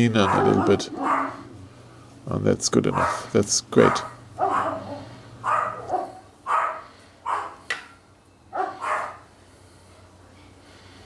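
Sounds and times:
dog barking: 0:00.2 - 0:01.5, 0:02.9 - 0:07.6, 0:08.5 - 0:09.2.

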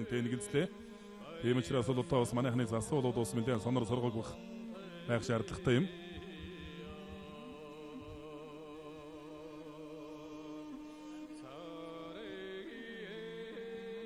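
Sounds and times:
person chanting with vibrato: 0:00.0 - 0:14.0.

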